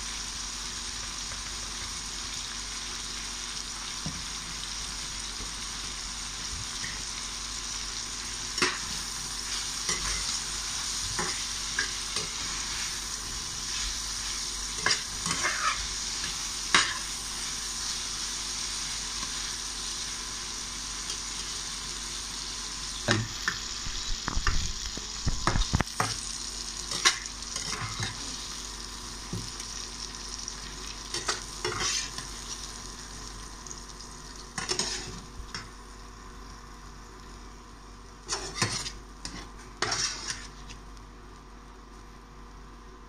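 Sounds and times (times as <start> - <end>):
vegetables sizzling in oil: 0.0 - 41.4
metal utensils scraping a pan: 14.8 - 15.8, 31.1 - 32.2, 34.6 - 35.2, 38.3 - 40.5.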